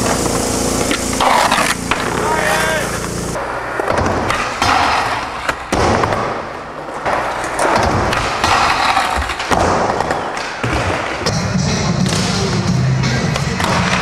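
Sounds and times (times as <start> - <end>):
skateboard rolling on hard ground: 0.0 - 11.2.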